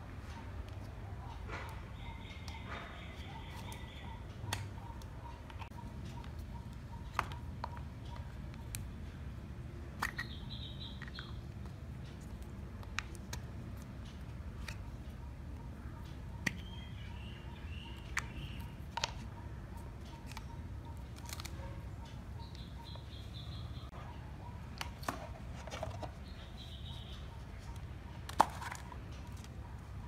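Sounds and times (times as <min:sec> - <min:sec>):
toy kitchen pieces clicking: 0:10.0 - 0:11.4
high chirping: 0:22.3 - 0:24.5, 0:26.2 - 0:27.8.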